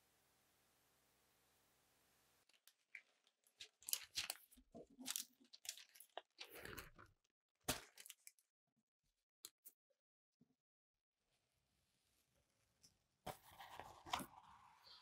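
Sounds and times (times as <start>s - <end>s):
baking paper crinkling: 2.5s - 7.1s.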